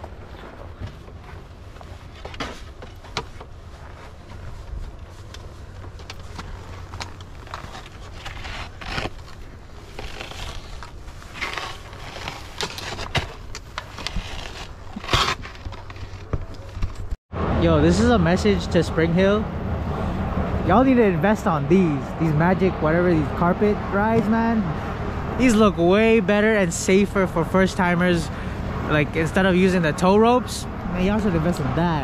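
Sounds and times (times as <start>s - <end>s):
snowboard gear handling: 0.0s - 17.2s
footsteps crunching on snow: 0.1s - 13.1s
steady low rumble: 17.3s - 31.5s.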